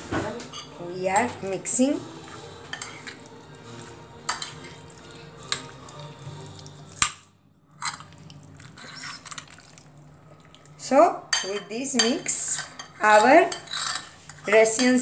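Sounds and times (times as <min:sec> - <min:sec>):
spoon stirring salad on plate: 0:02.1 - 0:09.9, 0:11.3 - 0:15.0
spoon clinking against plate: 0:02.2 - 0:05.8, 0:11.3 - 0:15.0.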